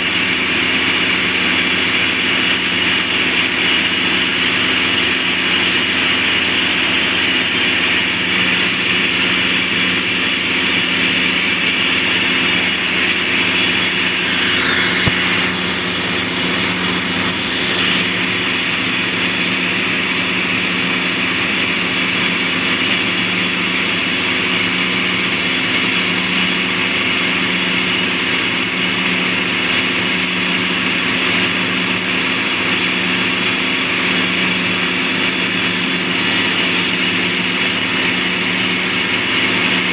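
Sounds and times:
drill rig hissing: 0.0 - 39.9
low hum: 8.1 - 19.9.

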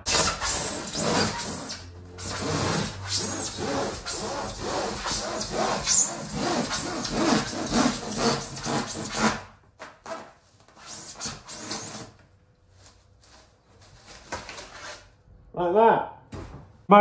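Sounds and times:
handsaw sawing foam board: 0.0 - 12.2.

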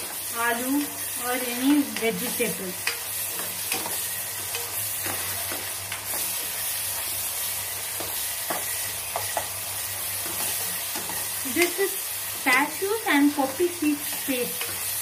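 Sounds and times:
onions and tomatoes sizzling: 0.0 - 15.0
spatula scraping a pan: 1.8 - 11.7.

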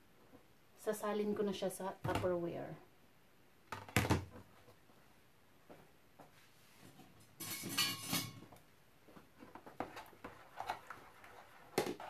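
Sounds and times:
utensils and dishes scraping clatter: 7.4 - 8.4.

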